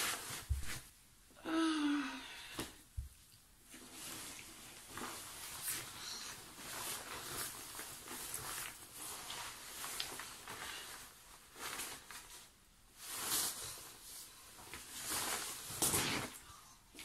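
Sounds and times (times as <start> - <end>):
padded jacket rustling: 3.8 - 16.4.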